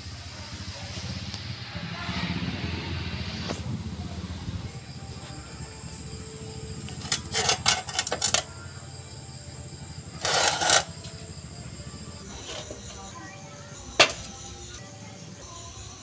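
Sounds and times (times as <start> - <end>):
steady low hum: 0.0 - 16.0
metal parts clinking and rattling: 6.9 - 8.6, 10.2 - 11.1.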